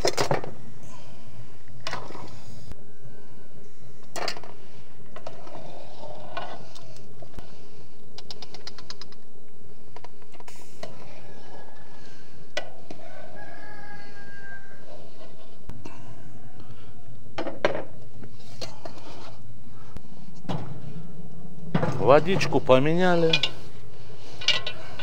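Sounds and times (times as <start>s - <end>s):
rooster crowing: 11.2s - 15.3s, 15.9s - 17.3s
knocks and clinks: 23.2s - 23.7s.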